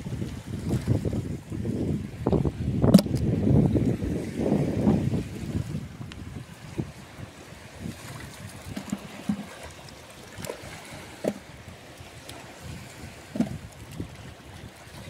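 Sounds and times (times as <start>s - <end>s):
wind: 0.0s - 15.0s
shallow water on pebbles: 5.2s - 15.0s
fish slapping on wet stones: 8.3s - 11.5s.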